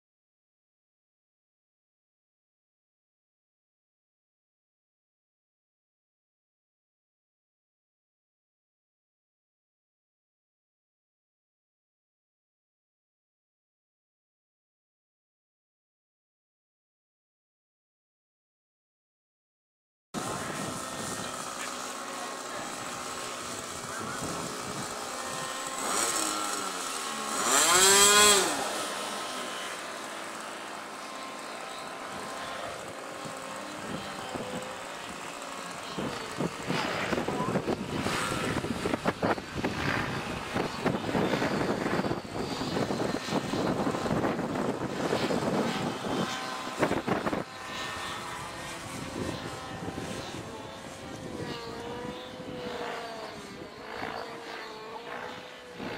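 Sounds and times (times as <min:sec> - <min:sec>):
model plane motor whining: 0:20.2 - 0:55.9.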